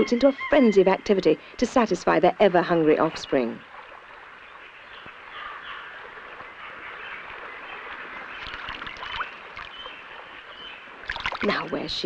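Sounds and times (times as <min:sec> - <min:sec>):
water splashing: 0:05.9 - 0:12.0.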